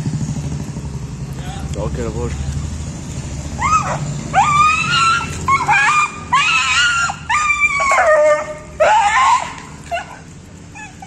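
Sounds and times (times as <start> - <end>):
dog whining: 3.6 - 11.0.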